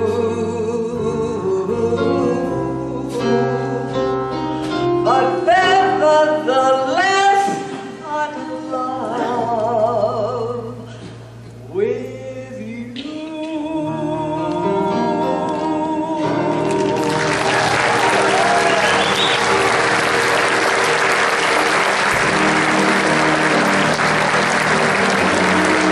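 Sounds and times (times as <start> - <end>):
live music accompaniment: 0.0 - 25.9
audience applause: 16.6 - 25.9.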